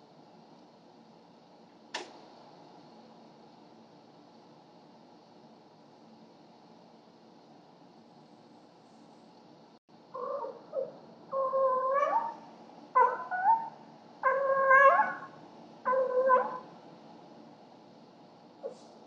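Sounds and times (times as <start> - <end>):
cat yowling: 10.2 - 12.4, 13.0 - 16.7.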